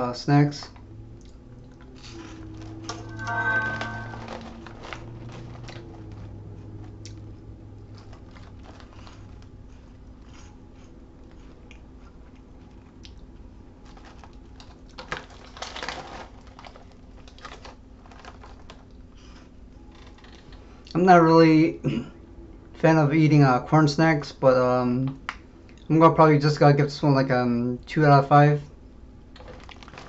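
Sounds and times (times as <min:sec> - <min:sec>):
crunchy snacks being chewed: 0:01.1 - 0:03.0, 0:04.2 - 0:20.5, 0:29.3 - 0:30.0
plastic bag crinkling: 0:03.8 - 0:06.5, 0:13.8 - 0:19.4, 0:29.4 - 0:30.0.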